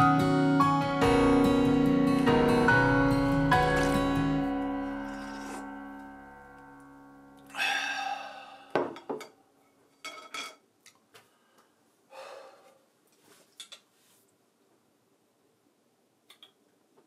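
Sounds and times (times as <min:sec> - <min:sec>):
heavy breath out: 0:07.4 - 0:09.1, 0:11.3 - 0:12.8.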